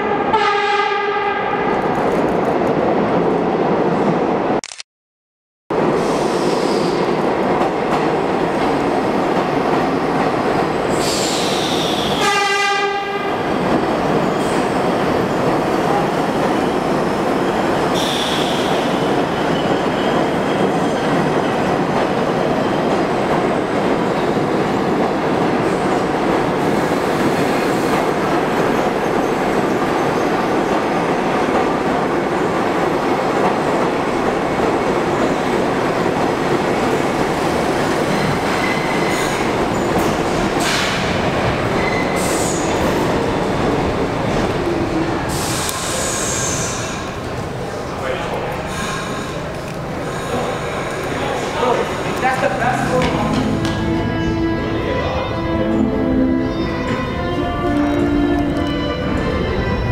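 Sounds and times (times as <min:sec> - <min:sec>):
subway train rumbling and clattering: 0:00.0 - 0:04.6, 0:05.7 - 0:59.9
train horn blast: 0:00.1 - 0:01.7, 0:12.2 - 0:13.4
high wheel squeals: 0:41.8 - 0:42.9.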